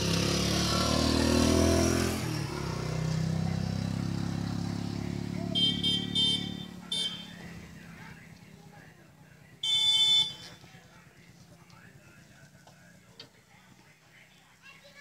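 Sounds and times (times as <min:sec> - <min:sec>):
motorcycle passing: 0:00.0 - 0:15.0
vehicle engine hum: 0:00.0 - 0:15.0
short high-pitched beeps: 0:05.6 - 0:07.4.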